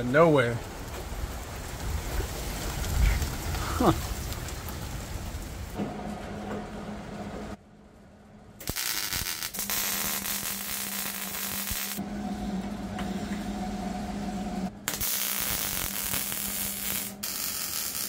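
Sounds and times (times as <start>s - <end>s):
steady hum: 5.8s - 18.0s
welding arc hissing: 8.6s - 12.0s, 14.8s - 18.0s.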